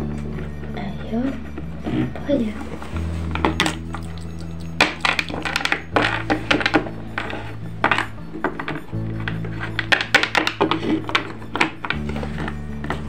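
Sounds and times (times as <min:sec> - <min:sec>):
plastic toys clicking together: 0:03.6 - 0:12.0.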